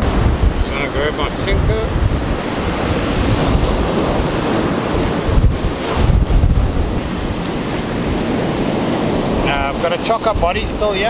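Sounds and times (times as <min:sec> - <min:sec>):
surf breaking on beach: 0:00.0 - 0:11.0
wind buffeting microphone: 0:00.0 - 0:11.0.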